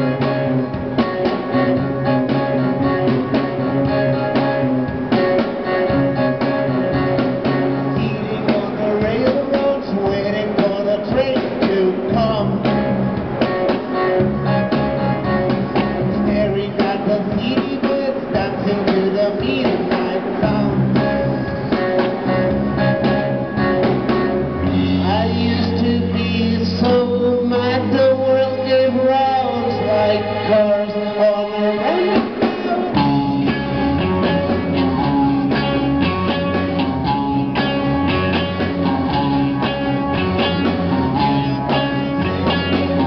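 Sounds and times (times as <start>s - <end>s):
drum kit: 0.0s - 43.0s
electric guitars: 0.0s - 43.0s
keyboard: 0.0s - 43.0s
man singing: 7.7s - 12.9s, 15.8s - 22.1s, 24.8s - 34.2s.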